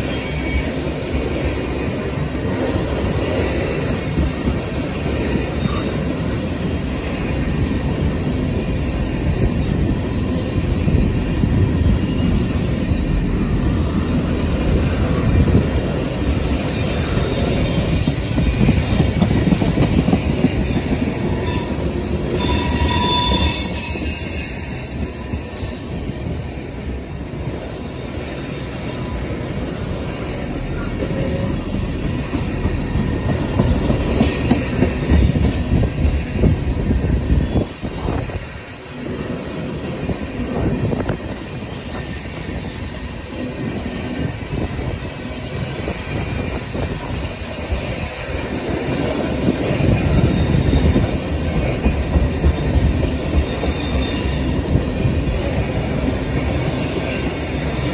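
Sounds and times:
high-pitched wheel squeals: 0:00.0 - 0:57.9
train wheels rumbling on rail: 0:00.0 - 0:57.9.

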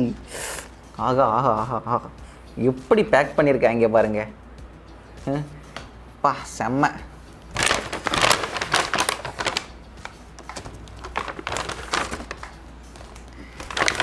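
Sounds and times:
paper bag rustling: 0:07.5 - 0:14.0.

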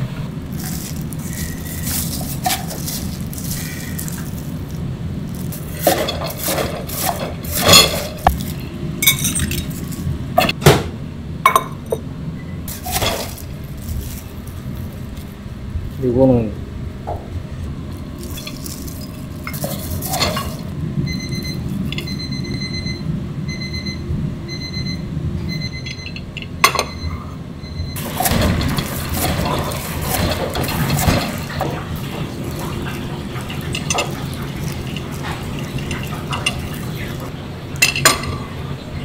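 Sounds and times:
wire rack and tray clinking: 0:00.6 - 0:10.6, 0:18.2 - 0:22.2, 0:28.0 - 0:38.5.

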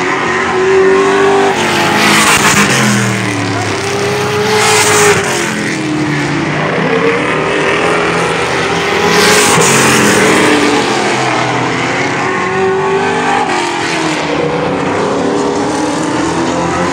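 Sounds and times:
race car engines passing: 0:00.0 - 0:16.9.

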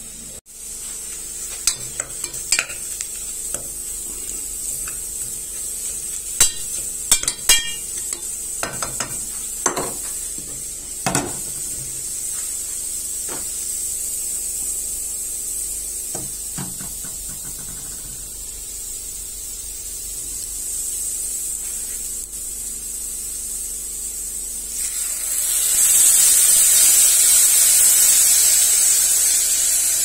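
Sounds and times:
frying sizzle: 0:00.0 - 0:30.0
spoon and lid clinking on cookware: 0:06.4 - 0:10.0.

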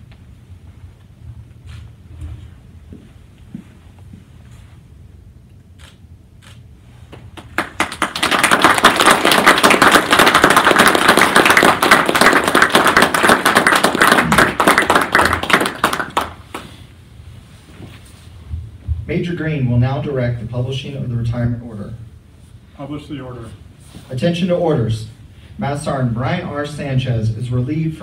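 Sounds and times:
audience applauding: 0:07.4 - 0:16.7.

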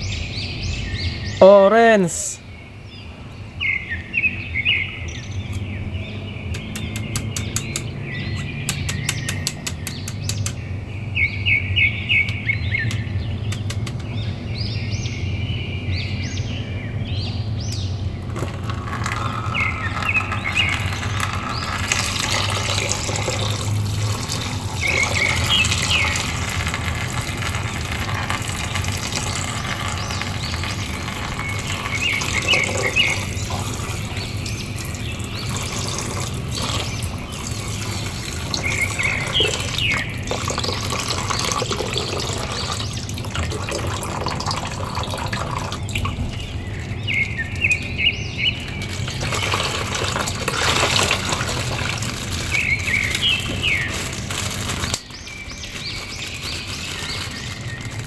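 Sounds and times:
birds chirping: 0:00.0 - 0:58.0
sharp clicks: 0:06.5 - 0:10.6, 0:12.3 - 0:14.1
water stream splashing into basin: 0:18.2 - 0:58.0.

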